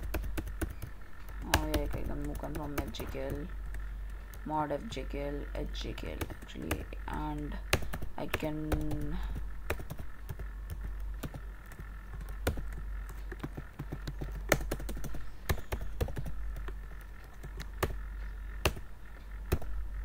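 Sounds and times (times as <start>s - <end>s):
computer keyboard clicking: 0.0s - 4.3s, 7.7s - 18.0s
steady low hum: 0.0s - 20.0s.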